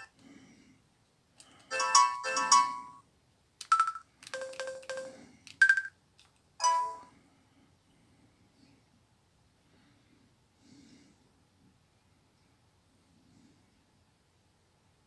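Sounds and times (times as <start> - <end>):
phone keypad beeps: 3.6 - 5.9.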